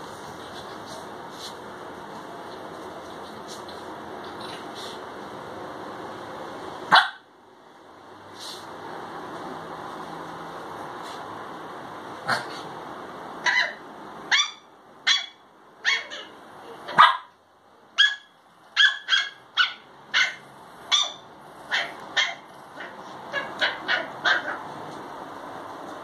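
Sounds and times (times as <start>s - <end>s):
small dog yapping: 13.4s - 17.3s, 18.0s - 24.6s.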